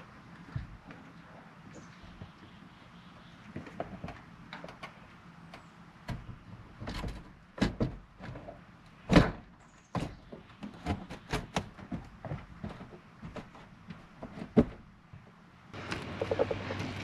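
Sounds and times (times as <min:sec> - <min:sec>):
knocks and scraping thuds on roof: 0:06.0 - 0:15.3.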